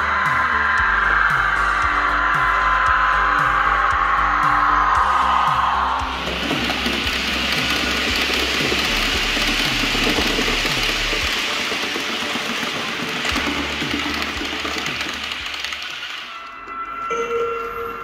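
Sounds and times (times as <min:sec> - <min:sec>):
model train running on track: 0:06.1 - 0:16.4.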